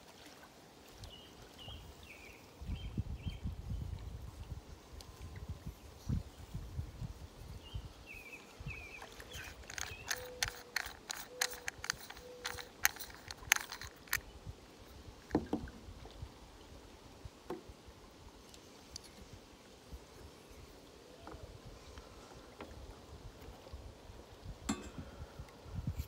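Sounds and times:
plastic mouthpiece clicking: 9.3 - 14.2.

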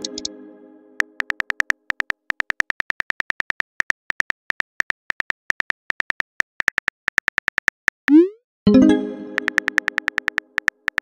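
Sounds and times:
phone keyboard key clicks: 1.1 - 7.9, 9.4 - 11.0.

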